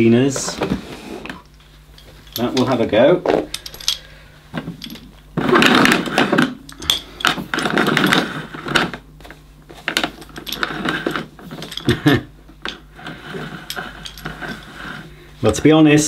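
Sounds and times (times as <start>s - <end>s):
vacuum cleaner cord rewinding: 4.8s - 9.0s, 9.9s - 12.1s, 12.7s - 15.1s.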